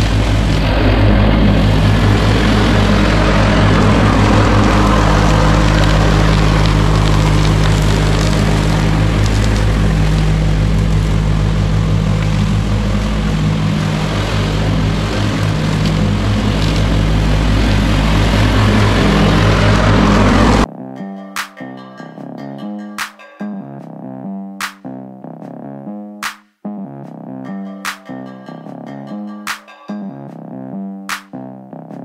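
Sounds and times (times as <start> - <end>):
lawn mower engine running: 0.0 - 20.7
music: 20.6 - 32.0.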